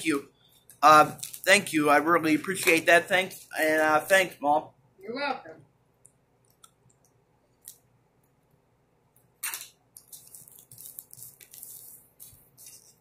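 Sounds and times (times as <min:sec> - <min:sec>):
plastic packaging crinkling: 0:01.0 - 0:01.7, 0:10.0 - 0:13.0.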